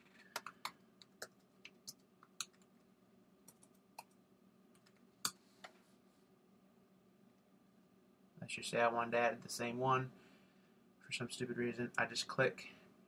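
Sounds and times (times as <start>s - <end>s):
typing on a keyboard: 0.0s - 2.8s, 3.5s - 4.2s.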